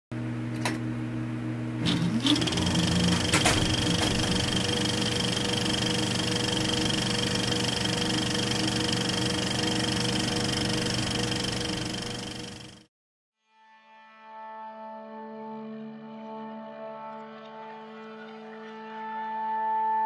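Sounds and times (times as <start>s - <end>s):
machine humming with held tones: 1.7s - 12.9s.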